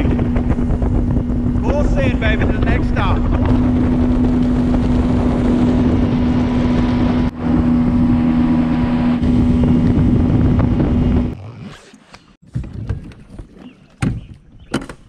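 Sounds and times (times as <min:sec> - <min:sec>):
rushing wind and water: 0:00.0 - 0:11.6
outboard motor running: 0:00.0 - 0:14.3.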